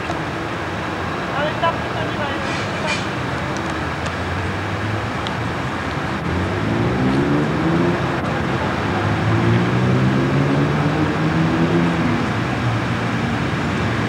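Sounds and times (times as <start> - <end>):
traffic hiss: 0.0 - 7.3
vehicle engine accelerating past: 6.2 - 12.3.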